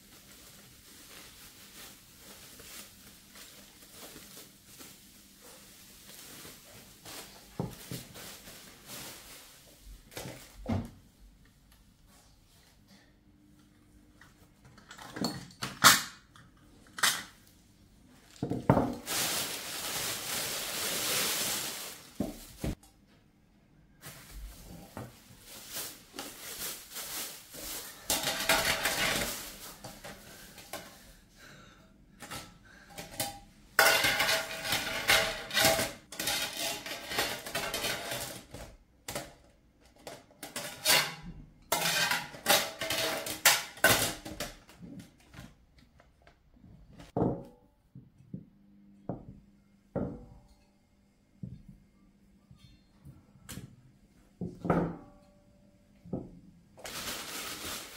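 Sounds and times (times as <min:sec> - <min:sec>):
steady hiss-like noise: 0:17.5 - 0:22.8.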